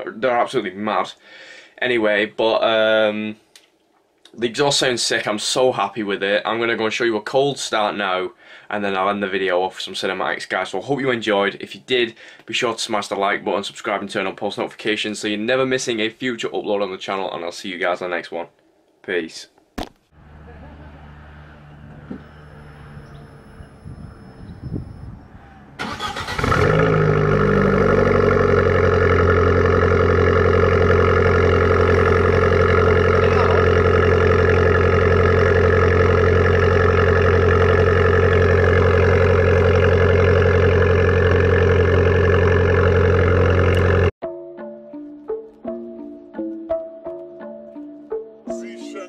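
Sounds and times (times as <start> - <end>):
starter motor cranking: 25.8 - 30.0, 30.7 - 44.1
car engine idling loudly: 26.0 - 44.1.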